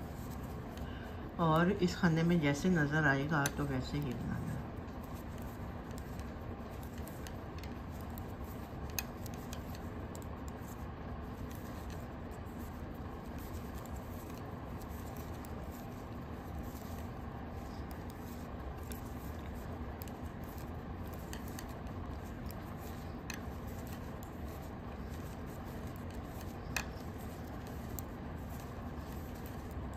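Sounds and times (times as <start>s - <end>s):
low background hum: 0.0s - 29.9s
knitting needles clicking: 5.1s - 10.7s.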